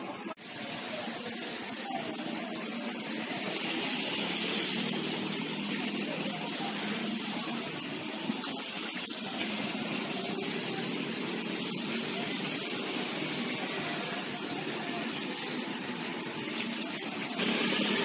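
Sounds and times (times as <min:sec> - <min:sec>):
rain hissing: 0:00.2 - 0:18.0.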